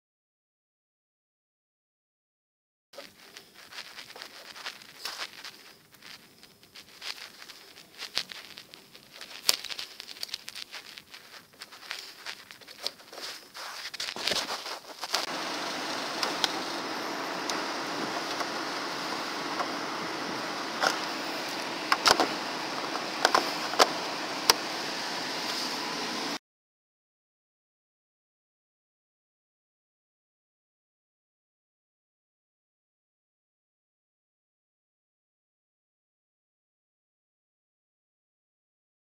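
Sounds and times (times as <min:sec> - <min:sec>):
steady hiss: 0:03.0 - 0:26.4.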